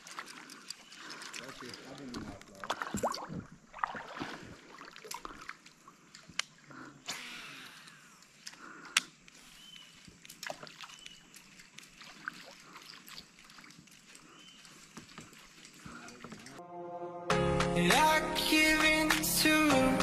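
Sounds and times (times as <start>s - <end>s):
water sloshing against kayak: 0.0s - 7.0s, 8.0s - 16.6s.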